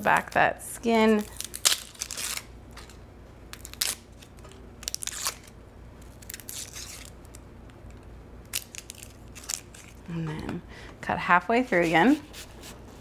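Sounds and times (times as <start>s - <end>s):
onion skin crackling and tearing: 1.0s - 10.1s.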